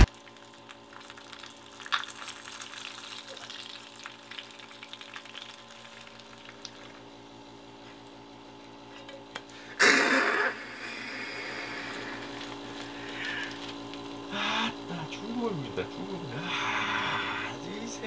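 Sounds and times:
fish sizzling in oil: 0.0s - 7.6s
steady low hum: 5.7s - 18.0s.

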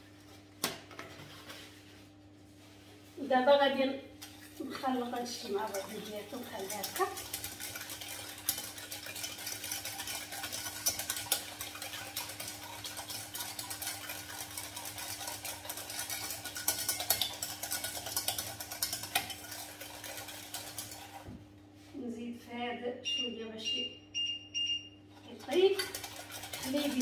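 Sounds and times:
whisk scraping metal saucepan: 4.9s - 21.3s, 25.1s - 27.0s
faint hum: 21.5s - 25.8s.

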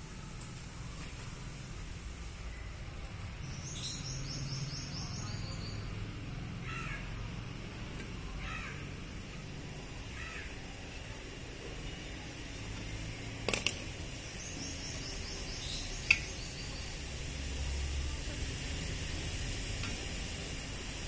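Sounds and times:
crow cawing: 6.6s - 7.1s, 8.4s - 8.8s, 10.2s - 10.6s.

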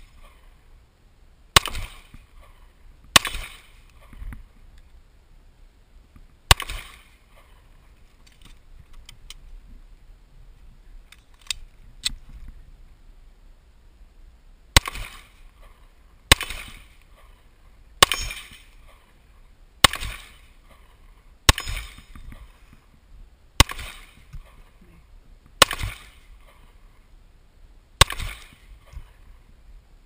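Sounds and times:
pistol shots with echo: 3.2s - 3.7s, 6.5s - 7.0s, 14.8s - 15.3s, 16.3s - 16.9s, 18.0s - 18.6s, 19.8s - 20.4s, 21.5s - 22.1s, 23.6s - 24.2s, 25.6s - 26.2s, 28.0s - 28.6s.

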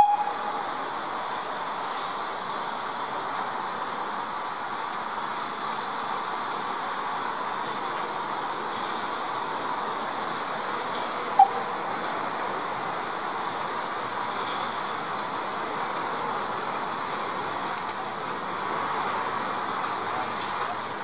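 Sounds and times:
sharp whistle peep: 0.0s - 0.6s, 11.4s - 11.6s
steam hissing from locomotives: 0.0s - 21.0s.

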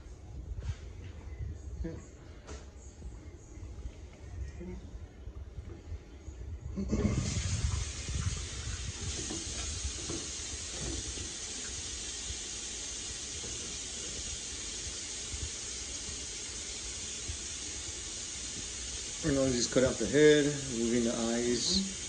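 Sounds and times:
tap water running into a sink: 7.2s - 22.0s.

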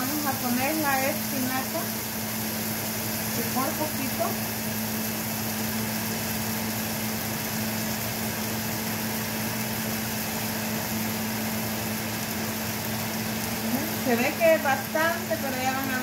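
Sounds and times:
range hood fan humming: 0.0s - 16.0s.

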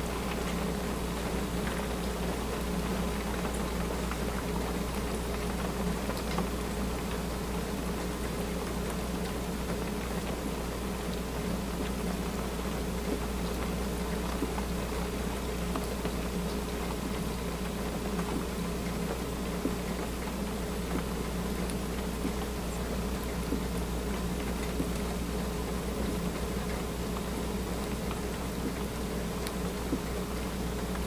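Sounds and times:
light rain pattering: 0.0s - 31.0s.

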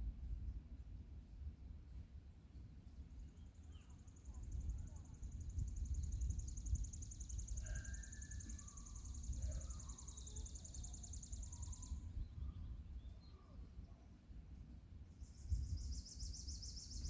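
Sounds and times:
faint bird chirps: 2.5s - 17.0s
wind on microphone: 4.3s - 9.7s, 11.3s - 13.2s, 15.3s - 17.0s.

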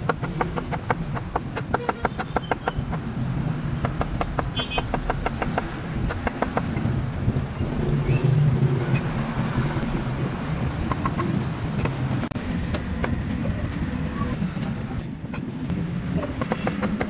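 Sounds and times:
street traffic hum: 0.0s - 17.0s
sharp clicks and knocks: 3.8s - 6.9s, 16.4s - 17.0s.

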